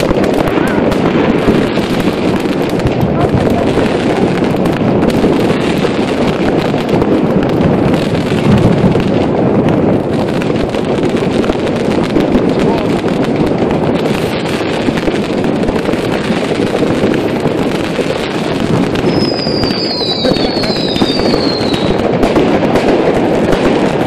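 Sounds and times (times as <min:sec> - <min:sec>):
fireworks crackling and banging: 0:00.0 - 0:24.0
high whistles: 0:19.1 - 0:21.9.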